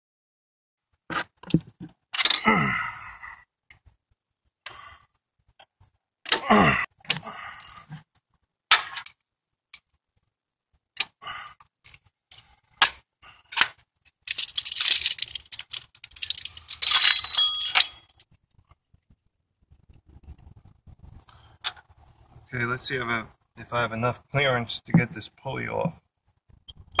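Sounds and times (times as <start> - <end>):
chain jangling: 14.3 - 18.2.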